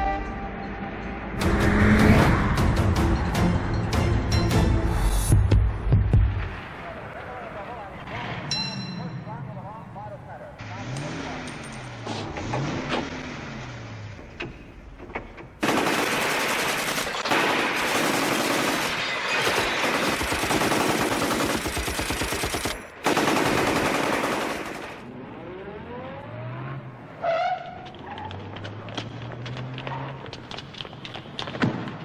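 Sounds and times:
submachine guns firing: 15.6s - 25.1s.

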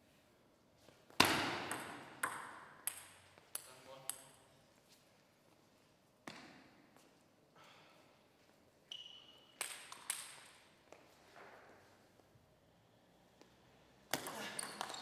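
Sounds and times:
table tennis ball bouncing: 1.2s - 4.2s, 14.1s - 15.0s.

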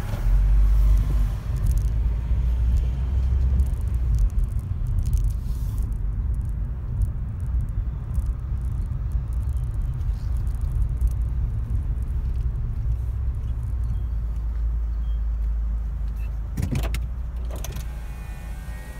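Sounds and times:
car driving rumble from inside: 0.0s - 18.9s.

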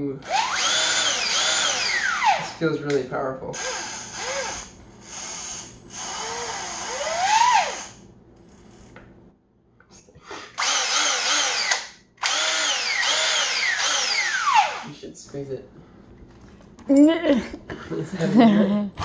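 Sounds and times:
impact tool motor whining: 0.2s - 2.6s, 3.6s - 9.0s, 10.6s - 14.9s.

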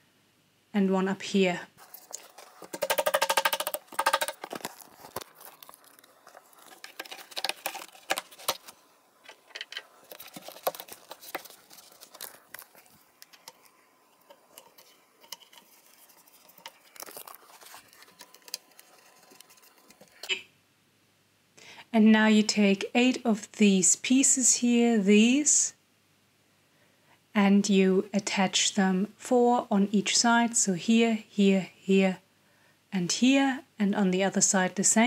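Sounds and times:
plastic clicking and tapping on board: 2.6s - 4.7s.

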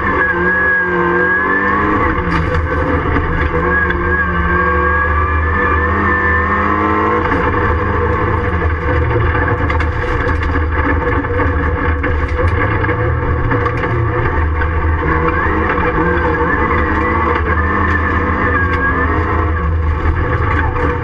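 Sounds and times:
race car engine from inside: 0.0s - 21.0s
sharp clatters and knocks: 2.2s - 4.0s, 7.2s - 21.0s.

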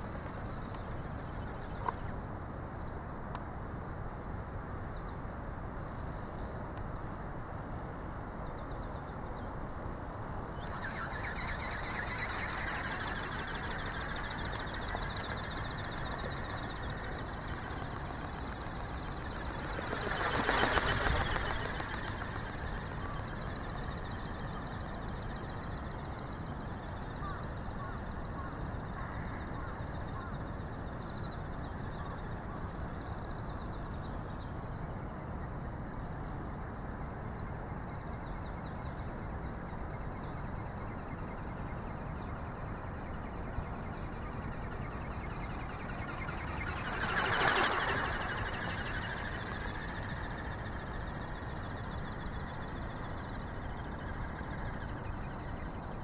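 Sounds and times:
electric motor whining with pulsing: 10.6s - 26.2s, 45.6s - 53.6s.

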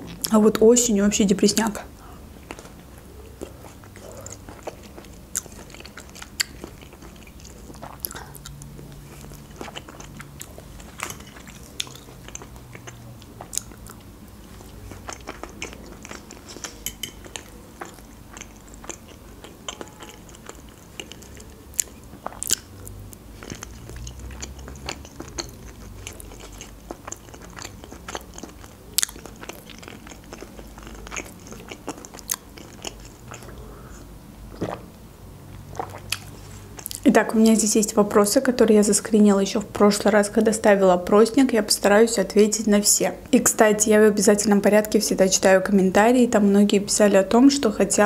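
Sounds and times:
wet chewing mouth sounds: 2.0s - 37.1s.

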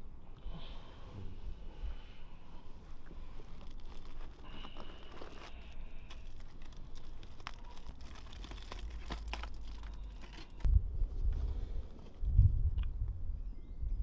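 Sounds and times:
aluminium foil crinkling: 3.1s - 10.7s.

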